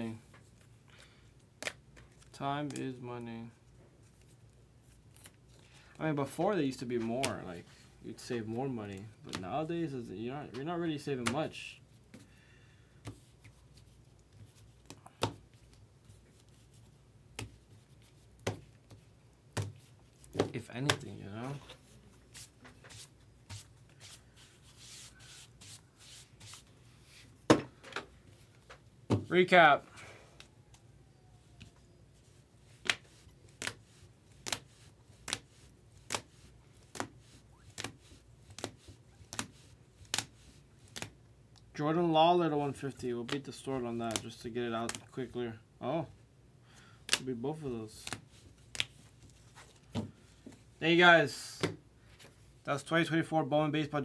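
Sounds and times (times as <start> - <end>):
cards and plastic holders tapping: 18.4 - 21.1, 34.4 - 40.3, 43.2 - 45.1.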